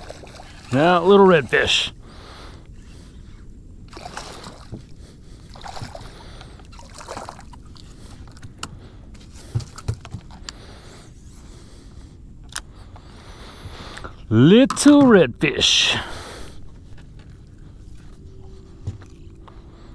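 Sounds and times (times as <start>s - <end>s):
water splashing and sloshing: 0.0s - 3.2s, 3.9s - 10.4s.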